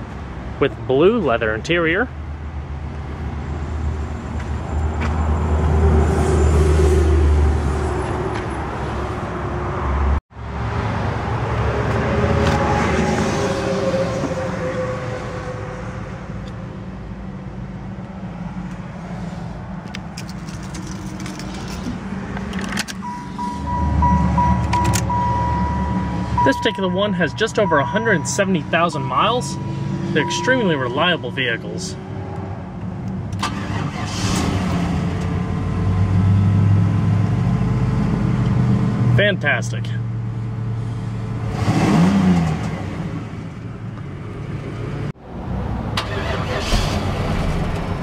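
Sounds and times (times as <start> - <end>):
warning chime tone: 23.0 - 32.0.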